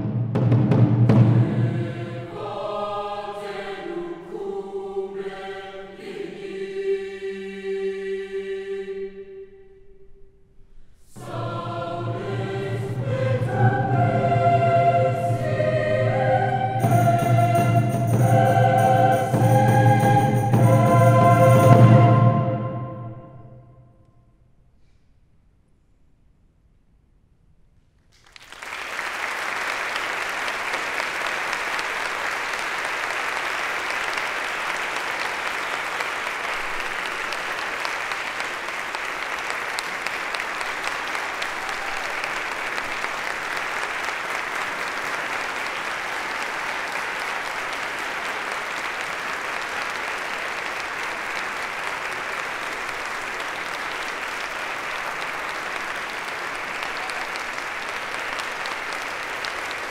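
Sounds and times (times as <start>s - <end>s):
audience applauding: 28.1s - 59.9s.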